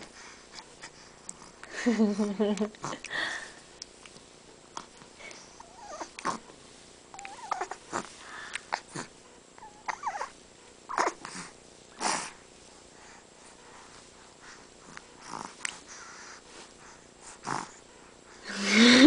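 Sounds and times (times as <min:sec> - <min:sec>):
baby cooing: 0:07.2 - 0:08.1, 0:09.6 - 0:10.3, 0:10.9 - 0:11.3.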